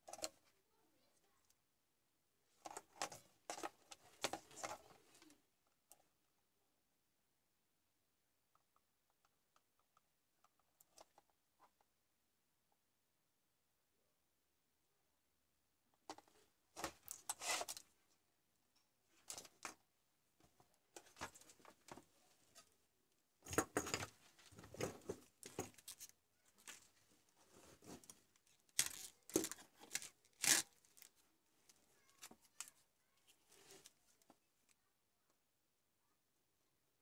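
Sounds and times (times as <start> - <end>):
tools handled on workbench: 23.4 - 28.2.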